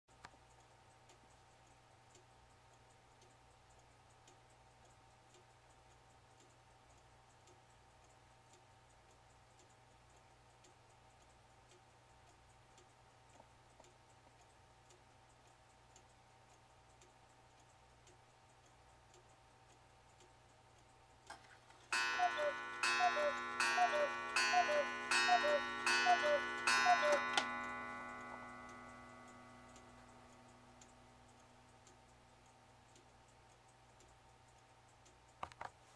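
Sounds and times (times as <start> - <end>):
clock ticking: 0.1 - 35.9
clock movement click: 21.2 - 34.2
cuckoo calls with strikes: 21.3 - 31.3.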